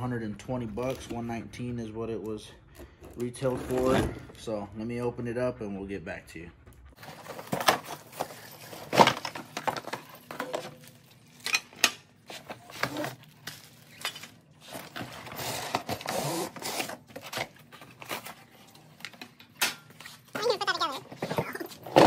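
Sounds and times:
cardboard and plastic rustling: 7.0s - 22.0s
plastic bag crinkling: 12.5s - 15.0s.

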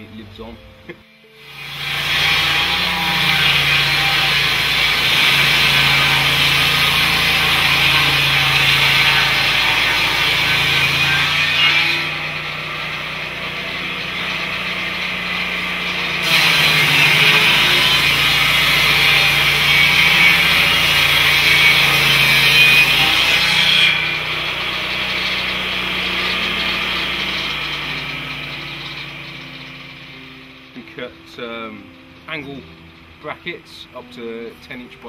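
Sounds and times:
sawmill blade cutting log: 1.4s - 30.9s.

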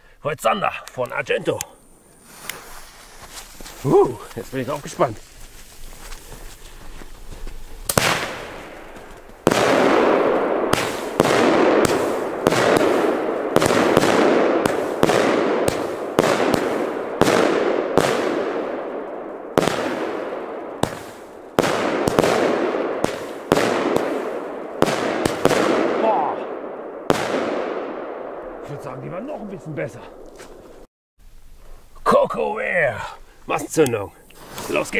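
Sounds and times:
firework shots: 7.8s - 29.4s.

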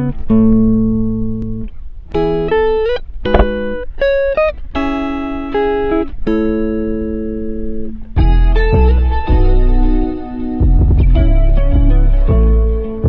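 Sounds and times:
guitar plucking chords: 0.0s - 13.0s.

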